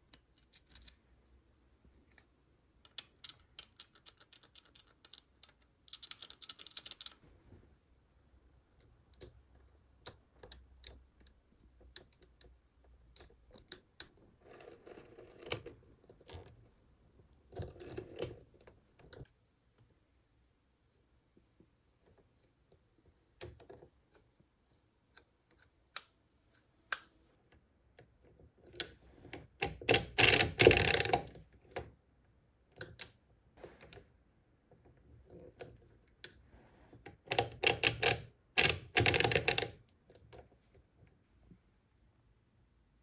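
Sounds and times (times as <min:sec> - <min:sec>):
hand-cranked calculator clicking: 0:28.8 - 0:31.3, 0:37.2 - 0:39.8.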